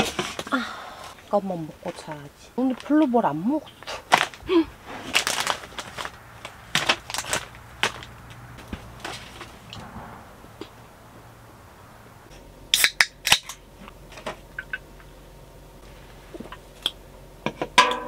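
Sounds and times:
can handling clicks: 12.7s - 13.6s
drink can pull tab cracking: 12.7s - 13.6s.

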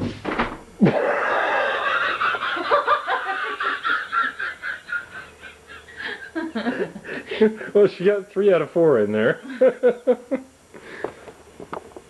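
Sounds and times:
person laughing hard: 0.8s - 7.6s.

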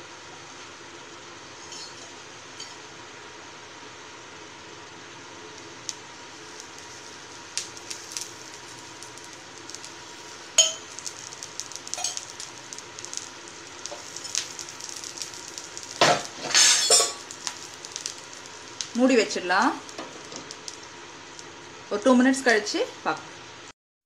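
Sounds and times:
batter sizzling on griddle: 0.0s - 23.7s
sharp pops and crackles: 5.5s - 19.1s, 19.7s - 21.6s.

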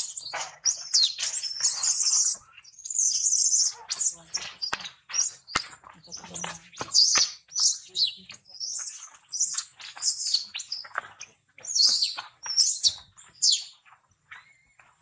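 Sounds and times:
baby monkey screaming: 0.0s - 6.2s.

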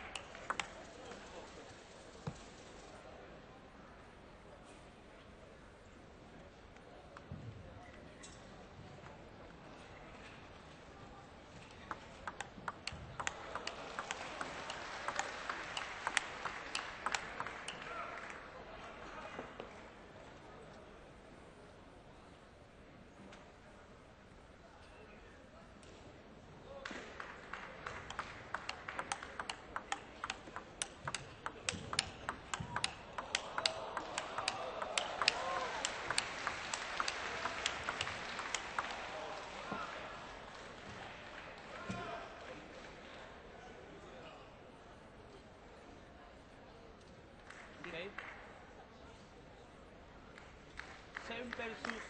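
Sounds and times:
table tennis ball ticking: 0.0s - 0.9s, 11.6s - 17.9s, 27.8s - 39.0s.

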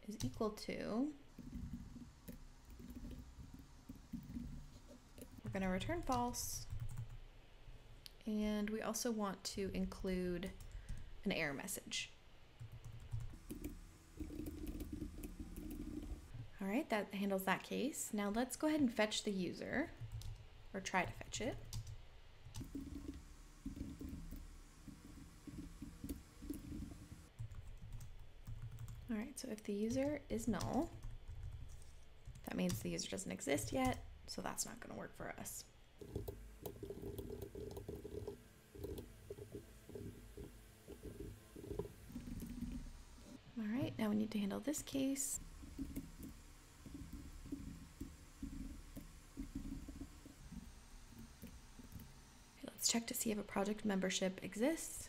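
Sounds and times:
computer keyboard typing: 1.4s - 7.2s, 12.6s - 16.3s, 21.4s - 29.1s, 29.9s - 32.9s, 36.0s - 42.9s
typing on a keyboard: 27.4s - 29.1s.

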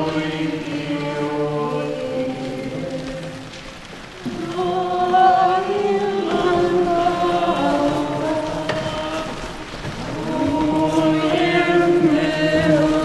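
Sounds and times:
group singing chant-like melody: 0.0s - 13.0s.

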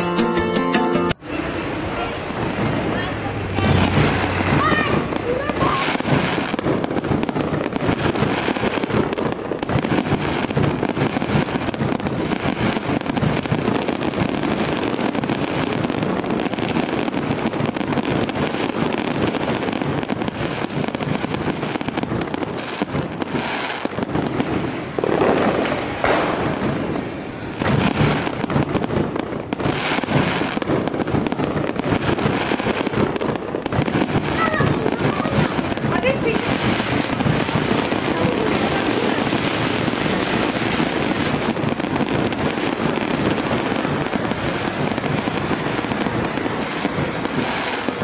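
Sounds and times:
ground fireworks fizzing and crackling: 1.2s - 48.0s.

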